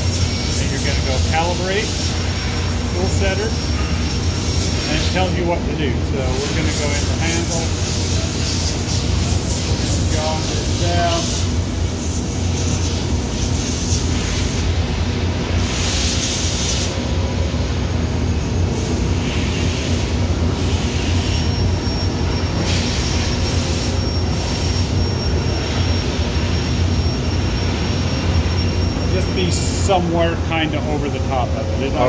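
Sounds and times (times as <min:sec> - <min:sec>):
milling machine humming: 0:17.0 - 0:32.0
faint high whine: 0:21.0 - 0:32.0.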